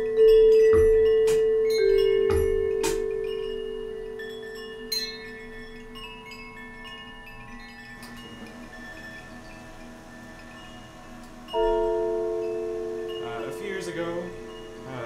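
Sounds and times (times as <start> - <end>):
high chime tinkles: 0.0 - 15.0
mallet strokes on ringing metal: 0.0 - 15.0.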